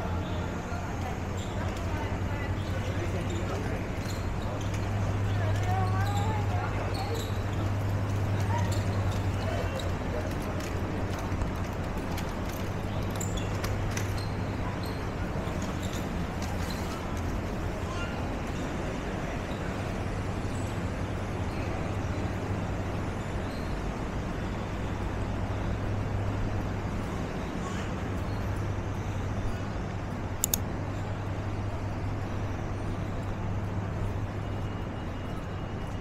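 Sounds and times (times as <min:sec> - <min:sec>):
traffic engines humming: 0:00.0 - 0:36.0
short sharp click: 0:30.4 - 0:30.6.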